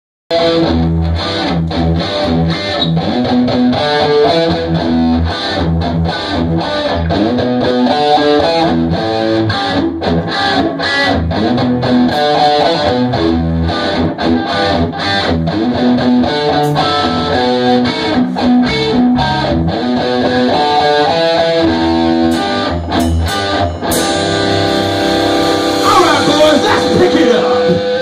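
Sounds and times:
electric bass: 0:00.3 - 0:28.0
electric guitar: 0:00.3 - 0:28.0
drum kit beat: 0:16.5 - 0:28.0.

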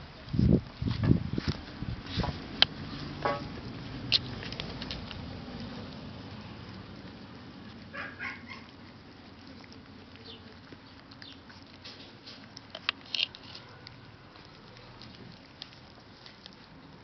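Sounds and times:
light pattering with clicks: 0:00.2 - 0:17.0
puppies squeaking: 0:07.7 - 0:17.0.

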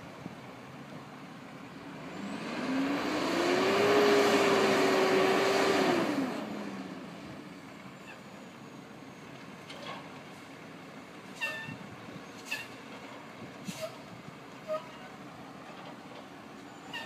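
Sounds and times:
garbage truck engine revving: 0:01.9 - 0:07.2.

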